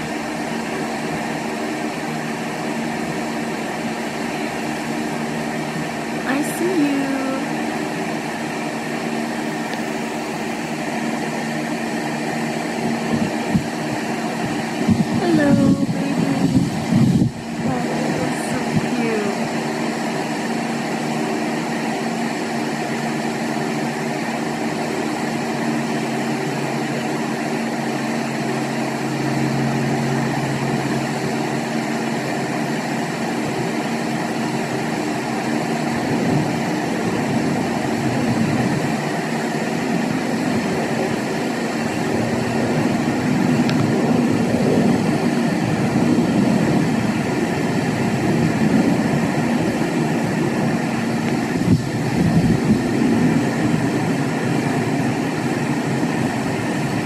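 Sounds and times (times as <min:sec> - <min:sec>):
machine humming: 0:00.0 - 0:57.0.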